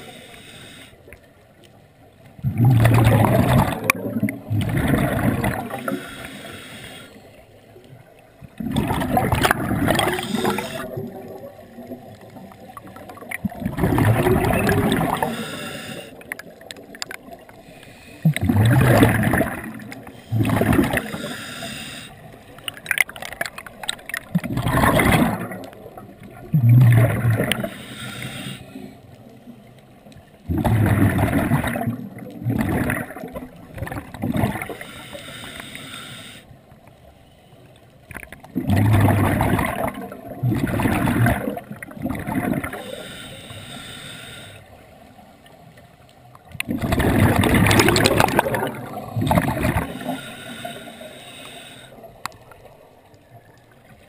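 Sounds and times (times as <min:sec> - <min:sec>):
diver exhaling gurgling bubbles: 0:02.4 - 0:06.4, 0:08.5 - 0:17.6, 0:18.2 - 0:22.1, 0:22.8 - 0:28.6, 0:30.5 - 0:34.9, 0:38.4 - 0:43.2, 0:46.6 - 0:52.6.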